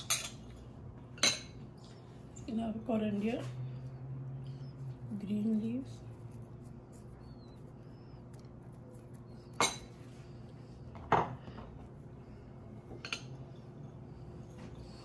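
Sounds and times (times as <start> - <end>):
utensil clinking against dish: 0.0 - 0.4, 9.5 - 10.0, 12.9 - 13.4
faint steady hum: 0.0 - 15.0.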